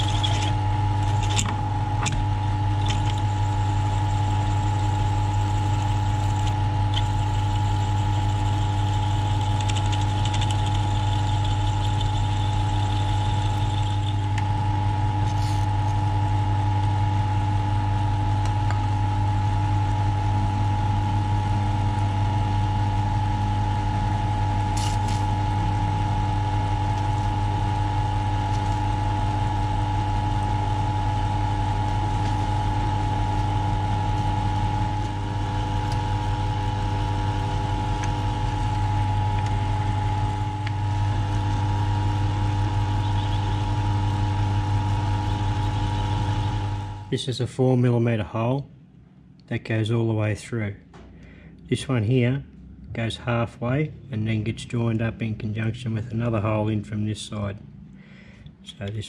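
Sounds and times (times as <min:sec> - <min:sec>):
milling machine drilling metal: 0:00.0 - 0:01.5, 0:02.1 - 0:14.4.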